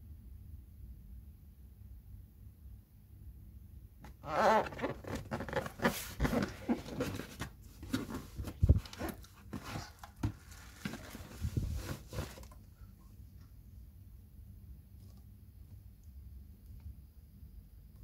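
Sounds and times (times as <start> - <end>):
wrapping paper rustling: 4.3 - 12.6
cardboard box scraping and tapping: 4.8 - 12.6.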